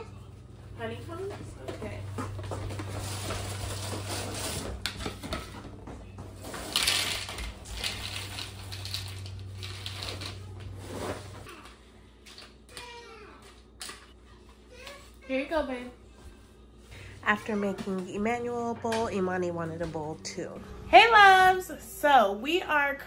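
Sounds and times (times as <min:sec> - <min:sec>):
steady low hum: 0:00.0 - 0:12.6, 0:14.0 - 0:23.0
cereal bag rustling: 0:06.4 - 0:11.4.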